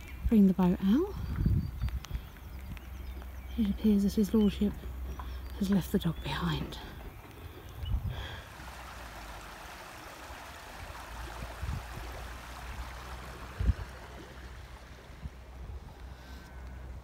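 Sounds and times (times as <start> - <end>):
wind thumping on microphone: 1.1 - 2.9, 7.8 - 8.4, 10.8 - 15.9
running water rushing: 6.3 - 16.5.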